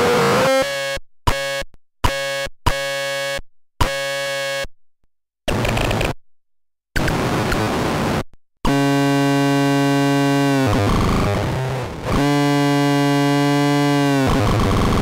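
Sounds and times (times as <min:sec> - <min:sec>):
synth buzzing drone: 0:08.7 - 0:15.0.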